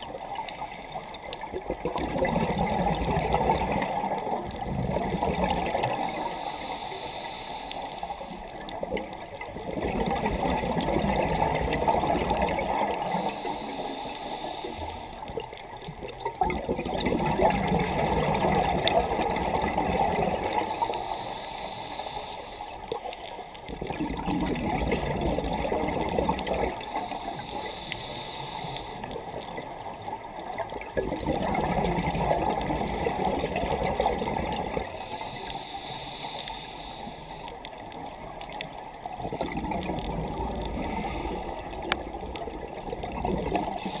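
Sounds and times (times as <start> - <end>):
underwater breath bubbling: 0.0 - 44.0.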